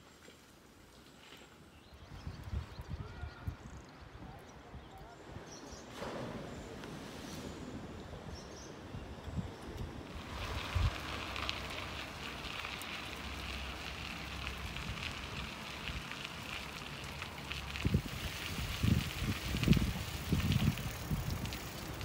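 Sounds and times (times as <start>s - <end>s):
wind rumble on microphone: 1.8s - 22.0s
bicycle tyres rolling on a trail: 6.6s - 22.0s.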